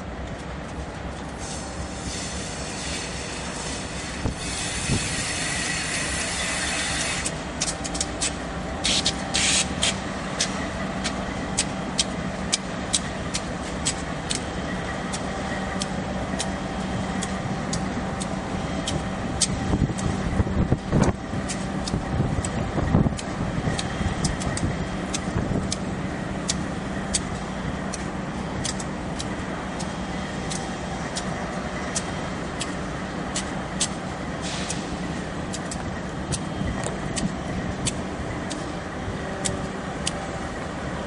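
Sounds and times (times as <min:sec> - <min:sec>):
diesel locomotive engine drone: 0:00.0 - 0:41.0
hiss: 0:01.4 - 0:07.4, 0:08.8 - 0:10.0, 0:34.4 - 0:35.2
wheels clicking over rail joints: 0:02.2 - 0:41.0.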